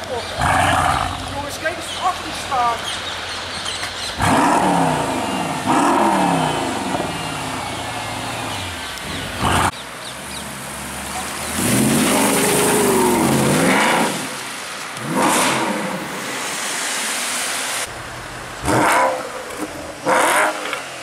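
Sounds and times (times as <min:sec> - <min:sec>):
supercar engine accelerating: 0:18.1 - 0:20.8.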